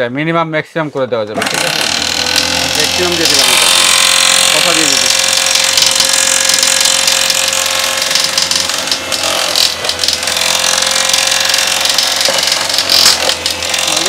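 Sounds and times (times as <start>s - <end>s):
food processor motor whining: 1.4s - 14.0s.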